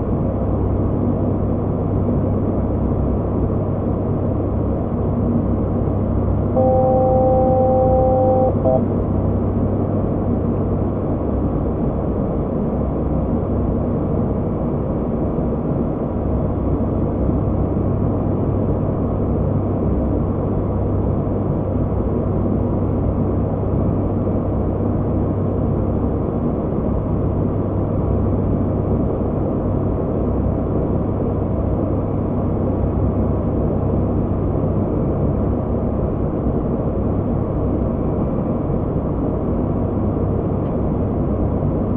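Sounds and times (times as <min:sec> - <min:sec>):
turboprop engines droning: 0:00.0 - 0:41.9
low hum: 0:06.4 - 0:09.3.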